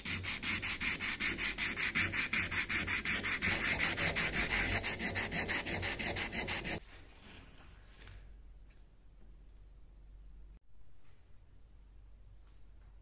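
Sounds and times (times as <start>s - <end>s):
sandpaper rasping on steel: 0.0s - 6.8s.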